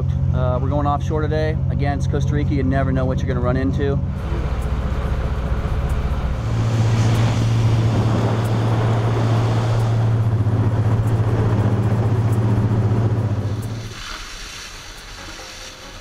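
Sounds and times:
boat motor running: 2.9 - 14.0
water rushing along hull: 4.1 - 16.0.

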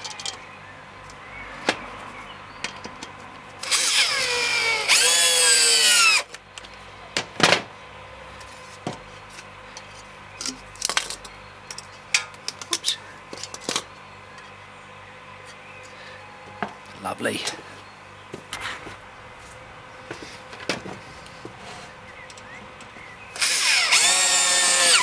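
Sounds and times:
electric drill driving screw: 3.6 - 6.3, 23.4 - 25.0.

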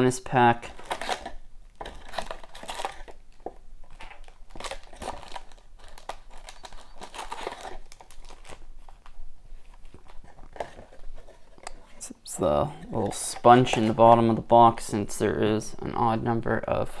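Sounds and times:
foil wrappers crinkling: 0.6 - 11.6.

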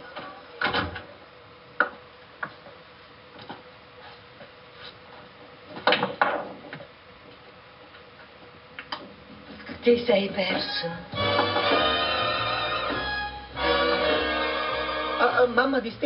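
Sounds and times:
faint steady hum: 0.0 - 16.0
billiard balls clacking: 11.2 - 13.0.

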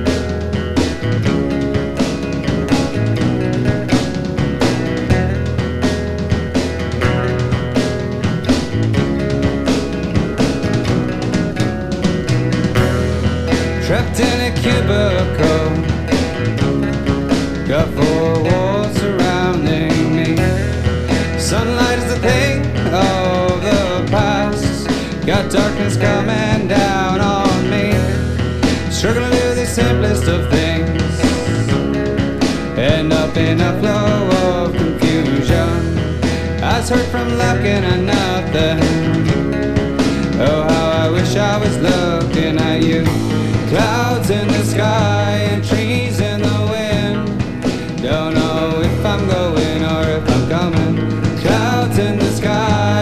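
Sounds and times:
rock band playing: 0.0 - 53.0
lead vocal singing: 13.5 - 16.6, 17.5 - 53.0.

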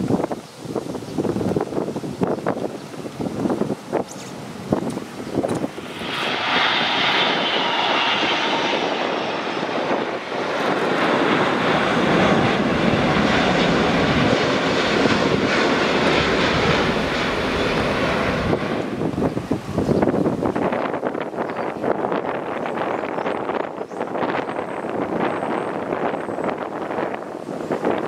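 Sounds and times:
jet airliner flying past: 0.1 - 28.0
faint high whine sliding down: 5.6 - 10.2.

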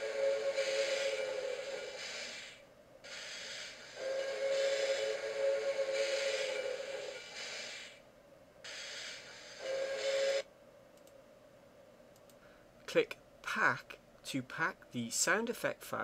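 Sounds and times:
steam train whistle blast: 0.0 - 7.9, 8.7 - 10.5
steam hissing: 0.0 - 8.0, 8.7 - 10.5.

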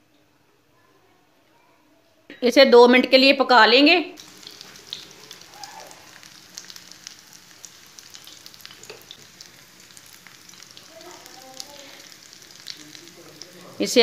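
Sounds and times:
bread frying in hot oil: 4.2 - 14.0.

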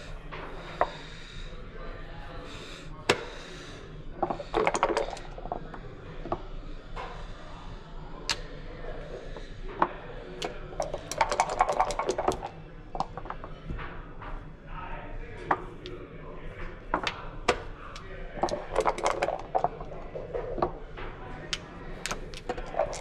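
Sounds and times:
dice rolling on board: 10.8 - 13.4, 21.5 - 23.0.

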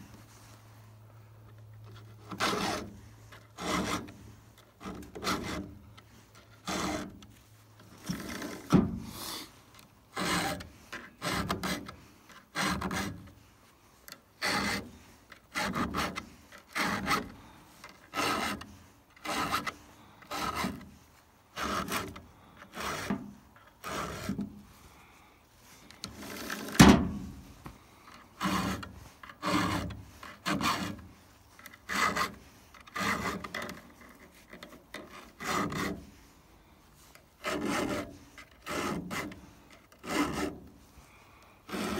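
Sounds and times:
file rasping on saw chain: 2.0 - 4.2, 4.8 - 5.8, 6.4 - 7.2, 10.1 - 13.3, 14.4 - 20.9, 21.5 - 23.2, 23.8 - 24.5, 28.3 - 36.2, 37.4 - 40.8, 41.7 - 41.9.

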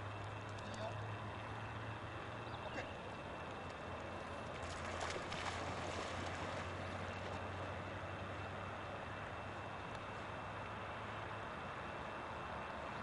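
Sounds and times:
low hum and hiss: 0.0 - 13.0
dog swimming: 4.4 - 7.8
dog splashing into water: 4.6 - 6.8.

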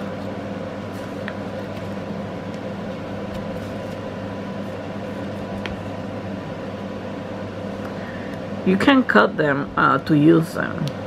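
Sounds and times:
steady background hum: 0.0 - 11.0.

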